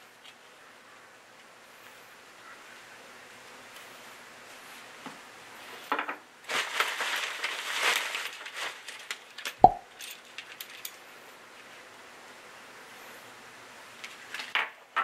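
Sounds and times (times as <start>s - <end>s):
plastic bag crinkling: 6.4s - 10.8s.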